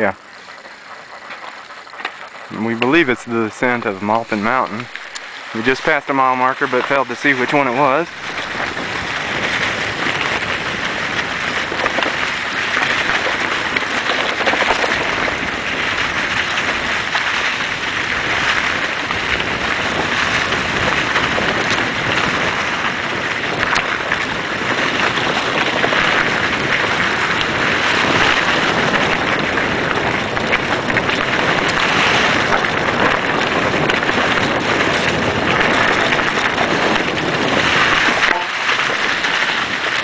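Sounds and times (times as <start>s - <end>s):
bike tyres rolling over leaves: 0.0s - 40.0s
wind rushing on microphone: 1.9s - 40.0s.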